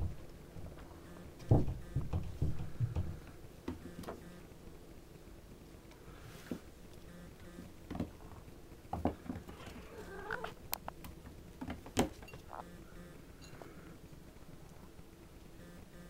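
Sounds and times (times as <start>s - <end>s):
kittens thumping on wooden floor: 1.4s - 3.8s.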